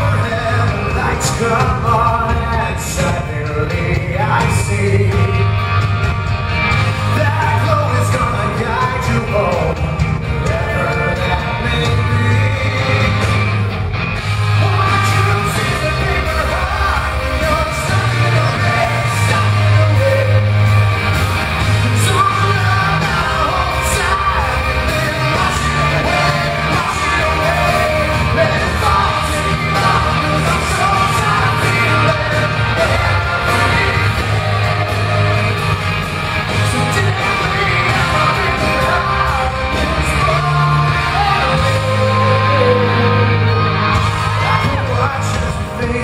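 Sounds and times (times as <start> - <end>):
man singing: 0.0 - 5.8, 6.8 - 13.8, 14.4 - 46.0
live rock band playing: 0.0 - 46.0.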